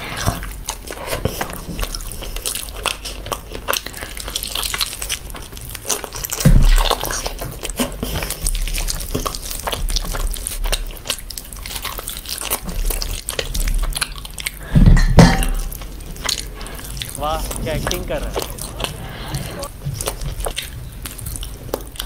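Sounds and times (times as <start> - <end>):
close chewing and smacking: 0.0 - 22.0
low thumps: 6.4 - 7.0.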